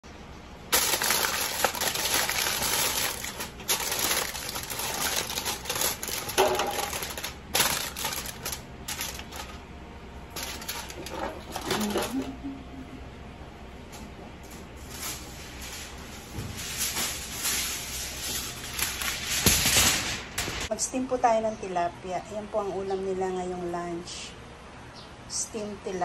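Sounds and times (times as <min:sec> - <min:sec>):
aluminium foil crinkling: 0:00.7 - 0:09.6, 0:10.3 - 0:12.2, 0:14.8 - 0:20.7.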